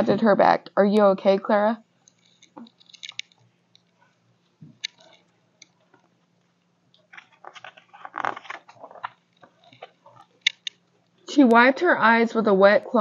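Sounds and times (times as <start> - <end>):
page turning rustle: 7.0 - 10.5.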